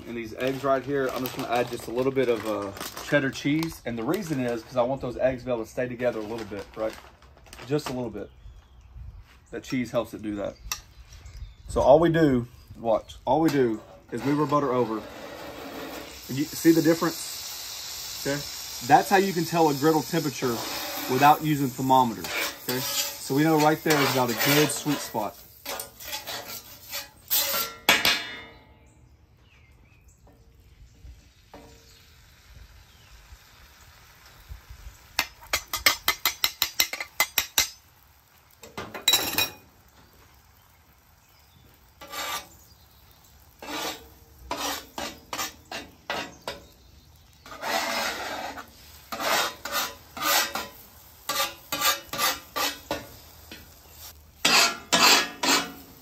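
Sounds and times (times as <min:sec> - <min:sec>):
metal spatula scraping griddle: 0:13.3 - 0:28.6, 0:41.9 - 0:56.0.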